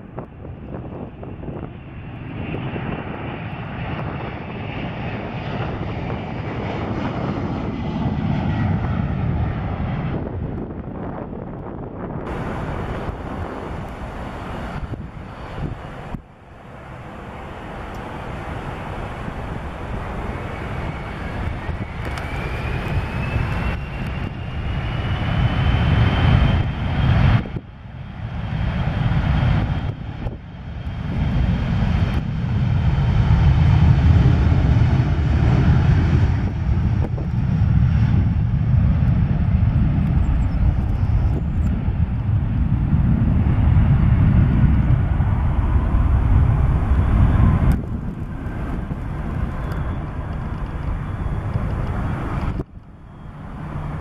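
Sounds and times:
jet engines rumbling: 0:00.0 - 0:54.0
turbine whine rising: 0:12.1 - 0:26.8.

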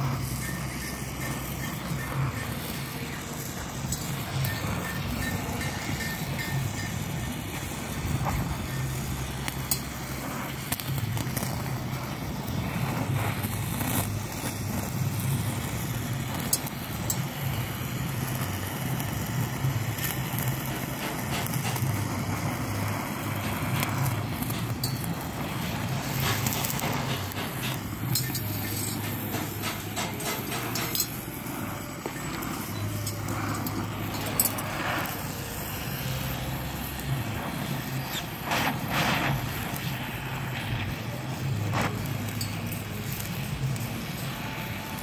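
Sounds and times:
gas torch flame hissing: 0:00.0 - 0:45.0
small crackles and clicks: 0:00.3 - 0:31.3.

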